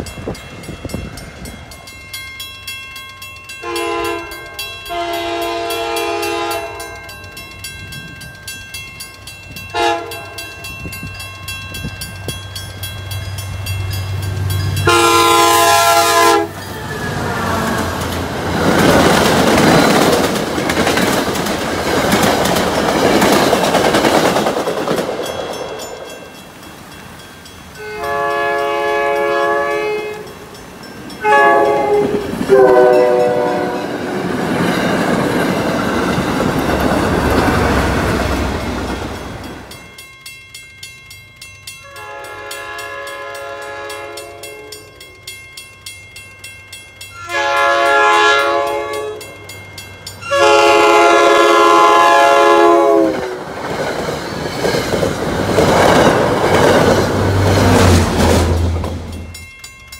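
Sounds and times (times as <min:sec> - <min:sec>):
crossing bell ringing: 0:00.0 - 0:59.9
train rumble: 0:00.0 - 0:59.9
train wheels clacking on rails: 0:00.0 - 0:59.9
train horn blasts: 0:03.6 - 0:07.0, 0:09.7 - 0:10.4, 0:14.8 - 0:18.0, 0:27.8 - 0:30.3, 0:31.2 - 0:34.0, 0:41.9 - 0:44.8, 0:47.2 - 0:49.3, 0:50.2 - 0:53.4.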